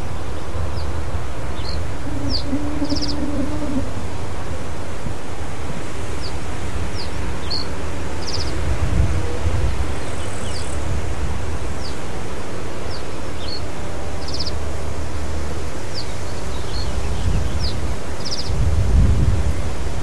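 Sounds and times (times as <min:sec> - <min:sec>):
reed bunting singing: 0:00.0 - 0:08.6
wind rumble on microphone: 0:00.0 - 0:20.0.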